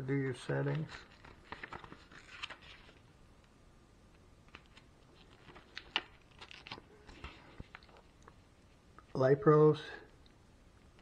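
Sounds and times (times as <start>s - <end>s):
paper rustling: 0.5s - 3.1s, 4.5s - 8.4s.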